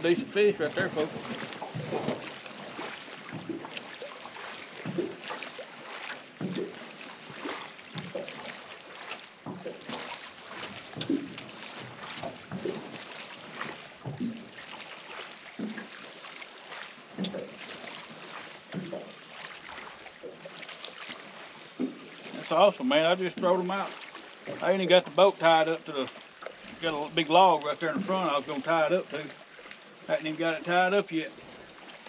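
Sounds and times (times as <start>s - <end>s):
small waves slapping boat hull: 0.0s - 32.0s
wind: 0.0s - 32.0s.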